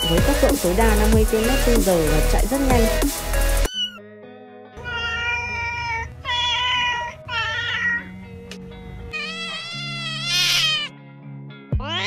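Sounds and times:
background music: 0:00.0 - 0:12.0
kitten meowing: 0:03.7 - 0:04.0, 0:04.8 - 0:08.1, 0:09.1 - 0:10.9, 0:11.8 - 0:12.0.

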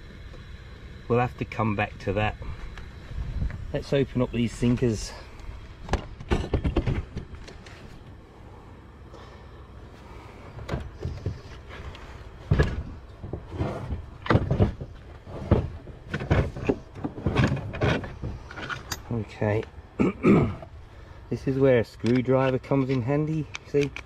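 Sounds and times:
metal knocks and clanks: 0:05.9 - 0:07.6, 0:10.6 - 0:19.2.

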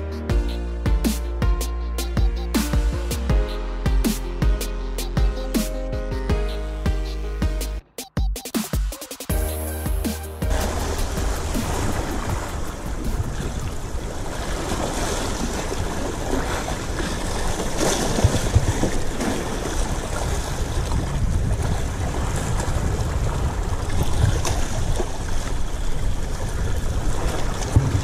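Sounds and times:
sea waves washing: 0:09.3 - 0:28.0
wind buffeting microphone: 0:10.5 - 0:28.0.

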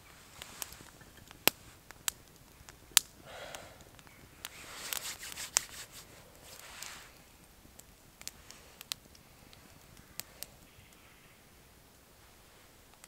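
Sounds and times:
soft rustling: 0:00.0 - 0:02.8, 0:04.0 - 0:10.6, 0:12.1 - 0:13.0
wood fire crackling: 0:00.0 - 0:13.0.

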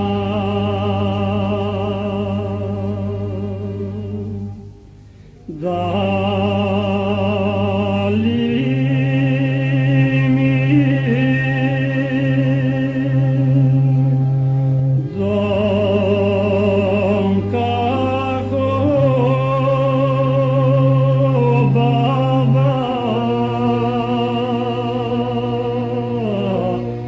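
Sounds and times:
steady low drone: 0:00.0 - 0:27.0.

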